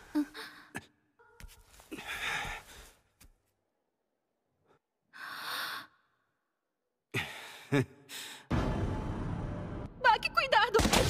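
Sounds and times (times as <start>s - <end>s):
man breathing heavily: 1.8s - 3.1s, 7.1s - 8.5s.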